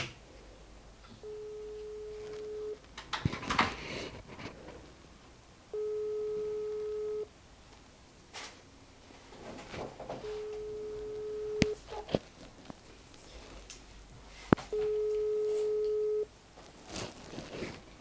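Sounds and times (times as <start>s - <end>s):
phone ringback beeps: 1.2s - 2.8s, 5.7s - 7.3s, 10.2s - 11.8s, 14.7s - 16.3s.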